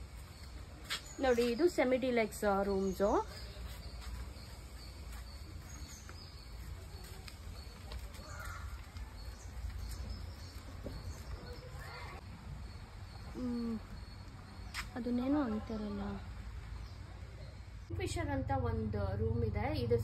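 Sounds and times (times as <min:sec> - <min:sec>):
bird chirps: 0:00.1 - 0:17.9
insect tones: 0:02.6 - 0:16.6.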